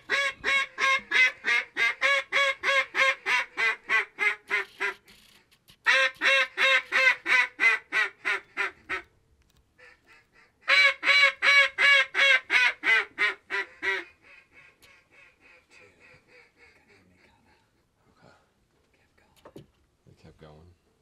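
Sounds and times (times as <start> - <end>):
duck call quacks: 0.0 - 5.1, 5.8 - 9.0, 9.8 - 17.0.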